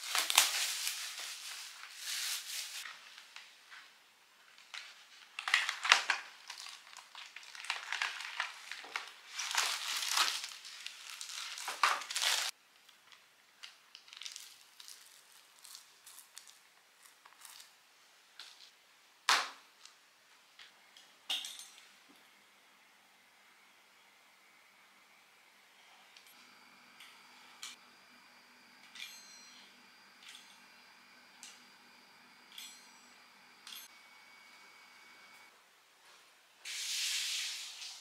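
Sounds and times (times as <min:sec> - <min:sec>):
packaging crinkling: 0:00.0 - 0:02.8, 0:04.8 - 0:12.5, 0:13.9 - 0:17.7
pastry sheets peeled apart: 0:05.5 - 0:12.5, 0:14.0 - 0:17.8.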